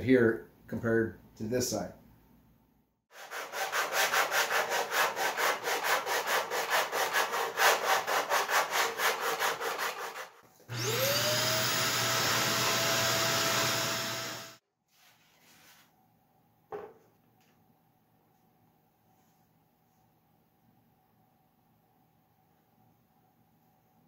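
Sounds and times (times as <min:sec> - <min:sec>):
sandpaper rubbing on wood: 0:03.1 - 0:10.3
shop vacuum whining: 0:10.7 - 0:14.6.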